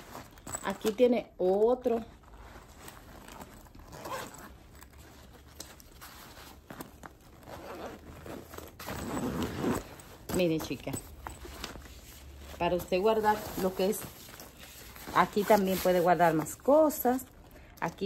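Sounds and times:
backpack fabric rustling: 0.0s - 17.2s
zipper pulled open: 2.1s - 10.5s.

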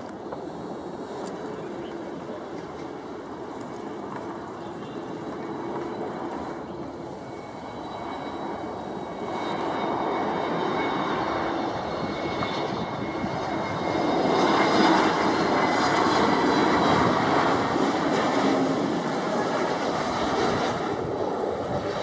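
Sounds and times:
jet airliner engines rushing: 0.0s - 22.0s.

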